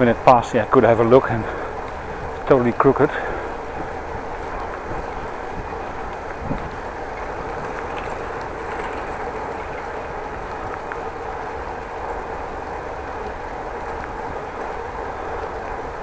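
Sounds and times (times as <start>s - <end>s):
bicycle tyres rolling on asphalt: 0.0s - 16.0s
wind on microphone: 3.5s - 16.0s.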